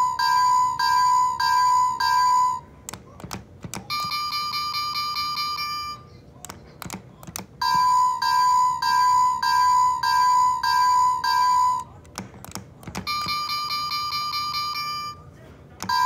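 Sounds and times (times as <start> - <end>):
toy crossing warning bell dinging: 0.0 - 2.7, 3.8 - 6.1, 7.6 - 12.0, 13.0 - 16.0
clicks: 6.4 - 7.8, 11.8 - 13.4.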